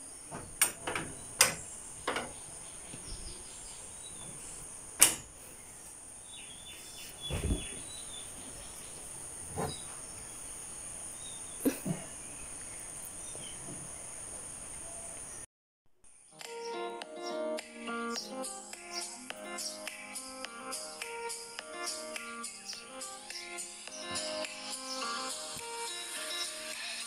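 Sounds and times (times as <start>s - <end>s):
window frames knocking and clicking: 0.3s - 3.2s, 5.0s - 5.3s
dull thump: 7.3s - 7.8s.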